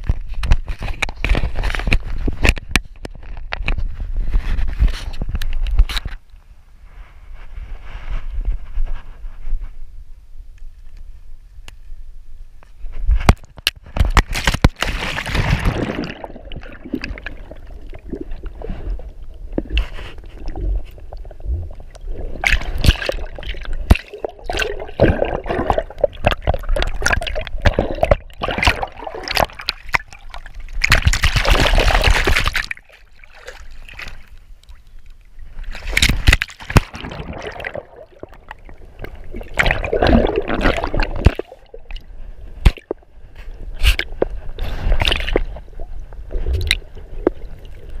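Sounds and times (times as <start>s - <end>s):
water sloshing and splashing: 14.0s - 48.0s.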